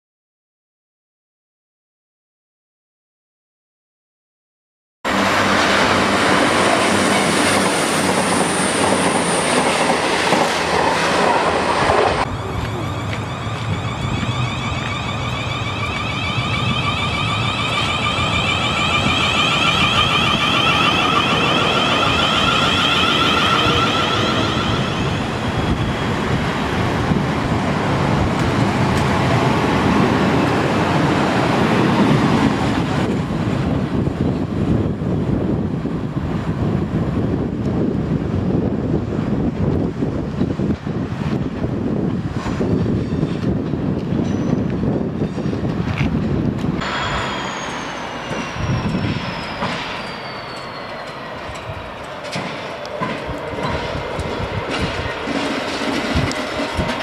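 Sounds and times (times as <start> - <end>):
diesel locomotive rolling past: 5.1 - 57.0
train wheels rumbling on rail: 5.1 - 57.0
high whine falling in pitch: 12.2 - 26.7, 46.8 - 52.0.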